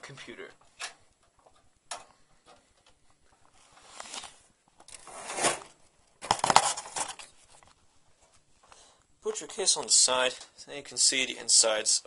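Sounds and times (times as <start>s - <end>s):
handling rustling and scraping: 0.6s - 8.8s.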